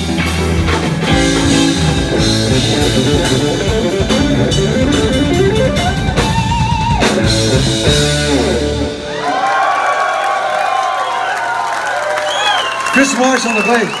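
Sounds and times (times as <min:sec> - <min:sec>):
rock band heavy hits: 0:00.0 - 0:10.0
electric guitar fast run: 0:00.4 - 0:09.3.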